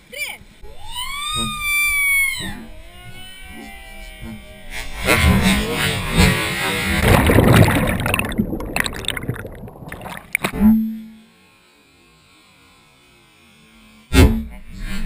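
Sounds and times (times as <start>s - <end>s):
water rushing and bubbling: 7.0s - 10.6s.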